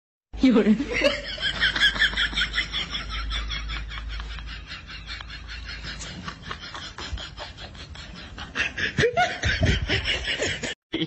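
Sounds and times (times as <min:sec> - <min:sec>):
person snickering and laughing: 0:00.9 - 0:11.0.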